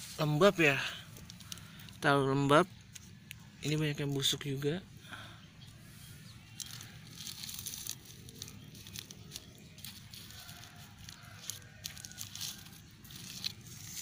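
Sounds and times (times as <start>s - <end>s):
plastic wrap crinkling: 1.1s - 2.0s, 6.5s - 14.0s.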